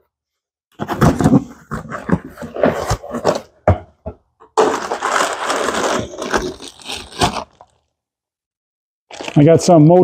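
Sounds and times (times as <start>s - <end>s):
packaging rustling and crinkling: 4.6s - 7.9s, 9.1s - 9.7s.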